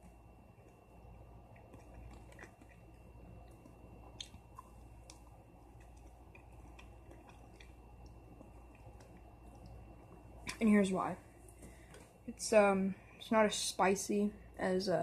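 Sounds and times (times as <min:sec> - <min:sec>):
low steady hum: 0:00.0 - 0:15.0
person chewing fried chicken: 0:00.6 - 0:10.4
wet mouth clicks and smacks: 0:01.5 - 0:09.8.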